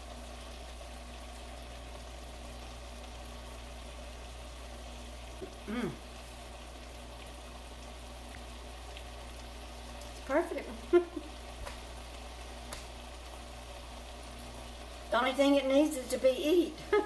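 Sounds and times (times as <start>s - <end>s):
faint hum: 0.0s - 17.0s
food sizzling in a pan: 0.0s - 17.0s
short falling vocal hum: 5.4s - 6.1s.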